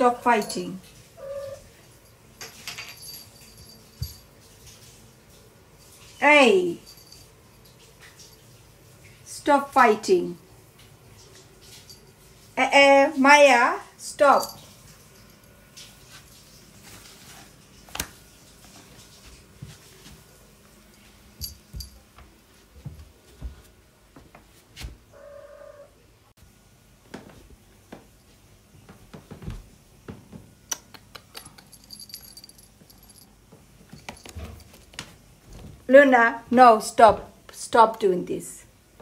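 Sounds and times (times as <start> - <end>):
collar tag jingling: 0.2 - 4.6, 6.7 - 8.6, 14.1 - 15.6, 31.4 - 34.9
cat meowing quietly: 1.2 - 1.7
soft knocks and rustles: 15.9 - 25.1, 27.0 - 30.6, 33.5 - 35.9.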